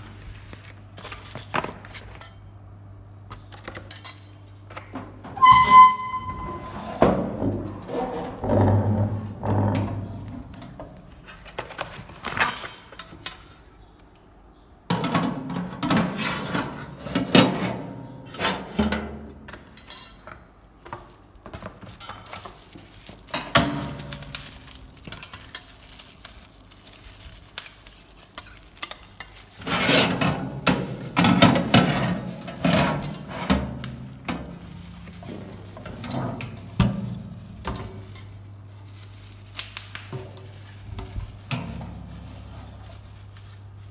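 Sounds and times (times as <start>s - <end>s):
plastic wrapping crinkling: 0.0s - 2.2s, 9.1s - 13.8s, 20.2s - 43.9s.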